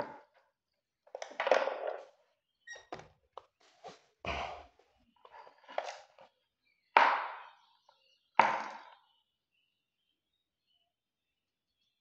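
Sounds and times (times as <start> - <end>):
plastic parts clattering: 1.1 - 2.1.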